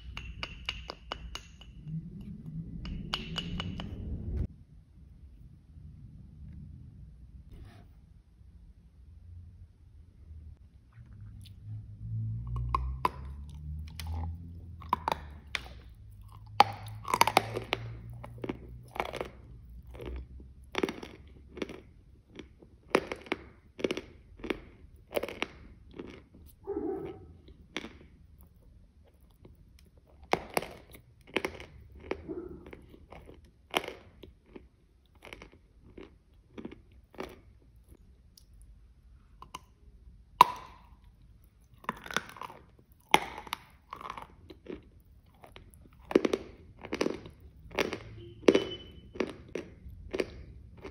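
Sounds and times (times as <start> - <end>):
low rumble: 1.5 - 8.0
close chewing with crisp clicks: 10.9 - 11.7, 12.5 - 50.9.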